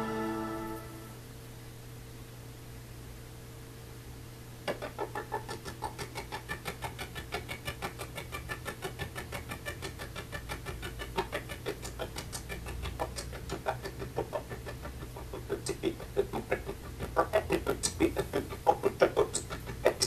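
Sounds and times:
steady low hum: 0.0 - 20.0
animal clucking rapidly: 4.7 - 20.0.

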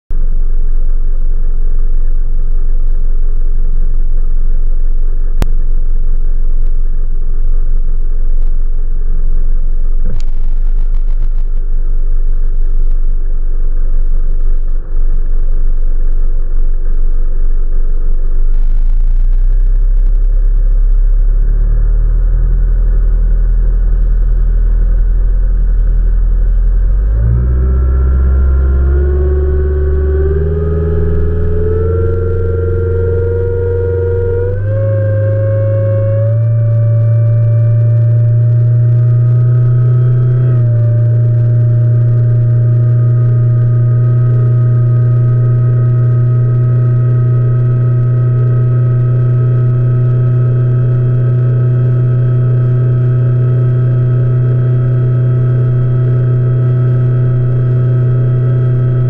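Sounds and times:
outboard motor rumbling: 0.1 - 59.0
boat hull on water: 32.1 - 59.0.

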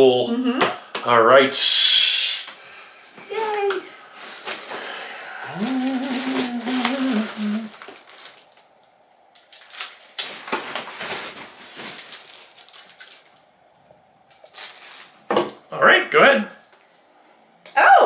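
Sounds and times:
person humming a tune: 5.3 - 7.8.

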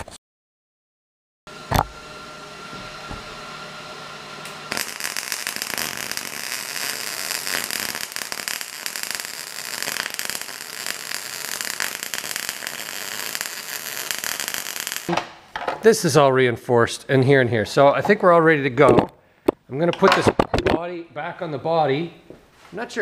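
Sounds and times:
welder arc crackling and sizzling: 4.4 - 15.1.

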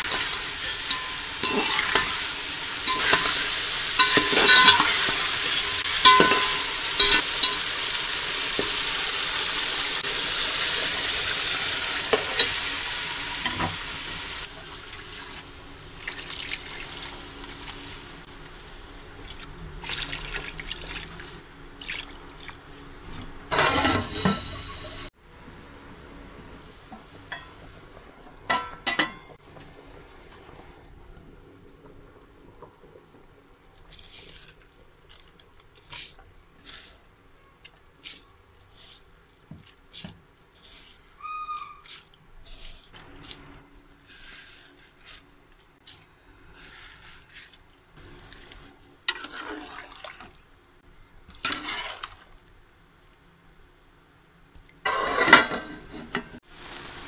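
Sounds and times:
utensils clinking against pot: 0.0 - 7.7, 28.5 - 29.4
liquid bubbling in metal pot: 49.0 - 52.6.

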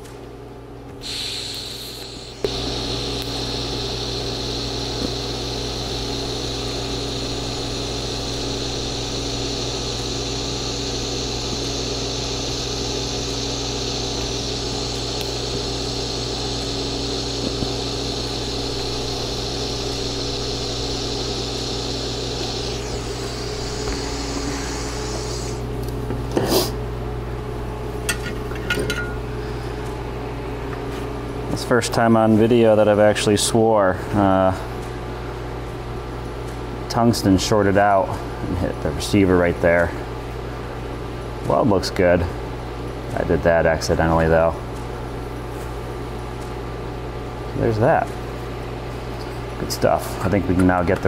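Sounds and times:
welding machine low hum: 0.0 - 51.0
welding arc buzzing: 1.0 - 26.7.

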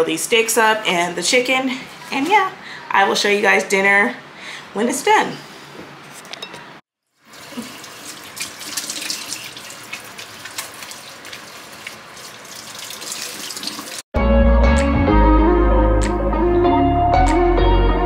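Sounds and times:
faucet water splashing: 7.2 - 14.1
music with heavy bass: 14.2 - 18.0.

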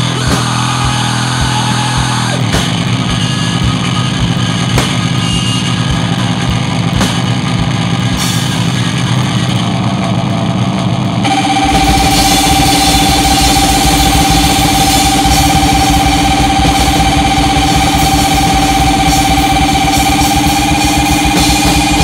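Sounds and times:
distorted noise: 0.0 - 22.0
low thumping pulse: 11.2 - 22.0.

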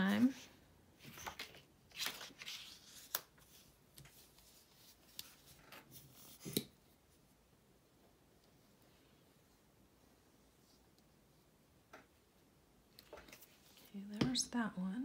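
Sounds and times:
paper rustling: 1.0 - 6.6.

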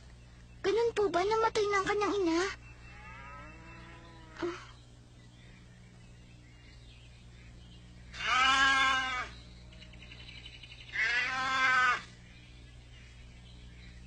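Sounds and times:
calf bawling: 8.1 - 9.9, 10.9 - 12.1.

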